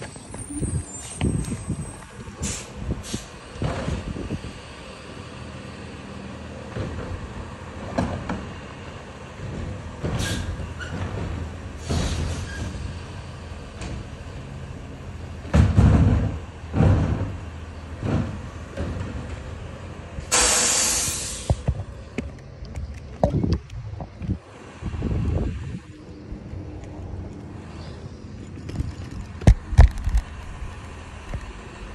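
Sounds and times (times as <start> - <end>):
diesel engine running: 0.0 - 31.9
truck low surges: 0.0 - 31.9
air hisses: 20.3 - 21.6.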